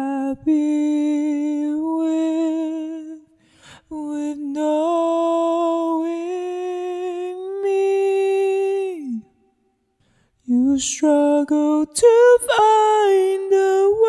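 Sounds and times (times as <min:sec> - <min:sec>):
man breathing in: 0:03.4 - 0:03.9, 0:10.0 - 0:10.4.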